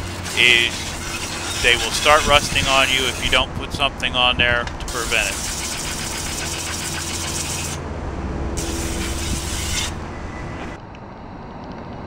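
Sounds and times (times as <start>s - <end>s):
hose nozzle spraying water: 0.0s - 3.5s, 4.9s - 7.8s, 8.6s - 10.0s.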